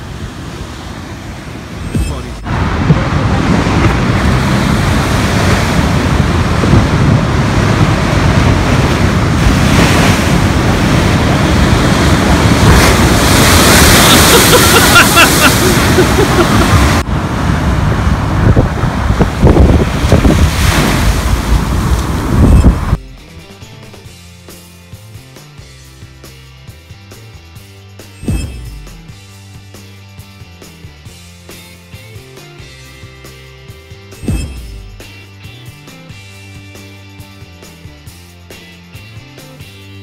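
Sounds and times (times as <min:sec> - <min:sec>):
waves crashing against sea wall: 0:00.0 - 0:23.0
wind buffeting microphone: 0:01.4 - 0:23.0.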